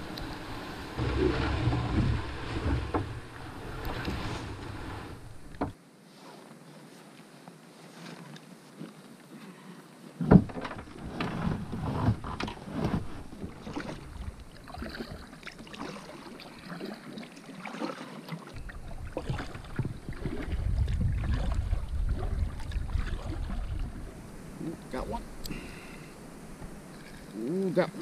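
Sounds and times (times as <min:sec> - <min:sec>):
knocks and scrapes in kayak hull: 0:00.0 - 0:05.8, 0:10.1 - 0:25.2
low rumble: 0:00.0 - 0:05.8, 0:18.6 - 0:24.3
paddle strokes in water: 0:00.0 - 0:28.0.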